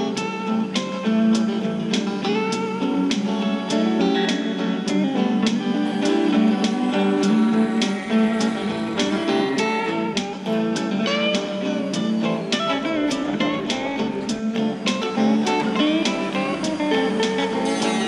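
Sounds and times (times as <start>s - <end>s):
guitar plucked and strummed: 0.0s - 18.0s
steady beat: 0.0s - 18.0s.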